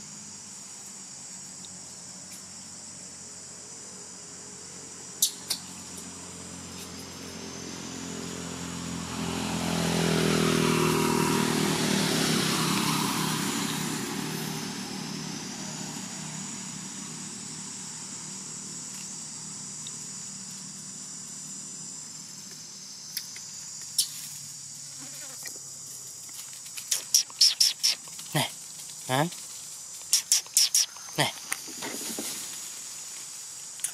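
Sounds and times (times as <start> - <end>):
insects buzzing: 0.0 - 33.9
vehicle passing by: 5.7 - 25.0.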